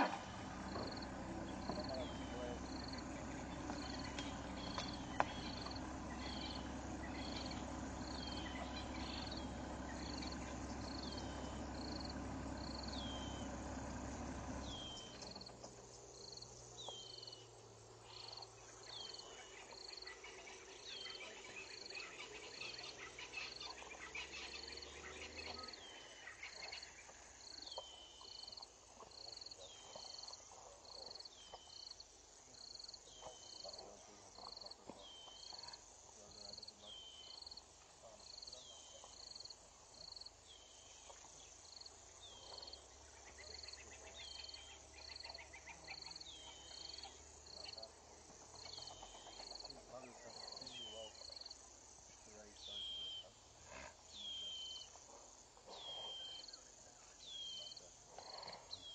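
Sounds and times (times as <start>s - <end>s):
low hum: 0.0s - 16.8s
bush ambience: 0.0s - 58.9s.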